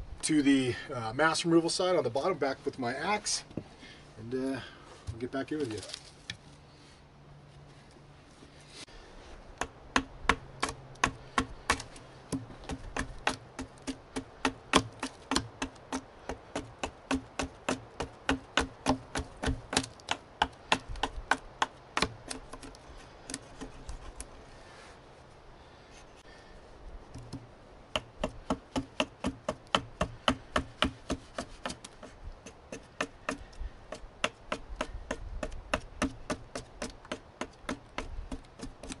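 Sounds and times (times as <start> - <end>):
hatchet chopping wood: 9.6 - 23.9, 27.1 - 39.0.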